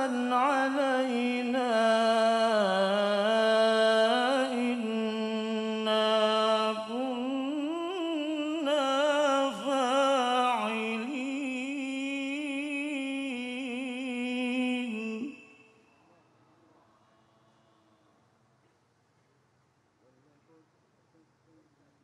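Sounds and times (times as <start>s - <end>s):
man chanting through microphone: 0.0s - 15.4s.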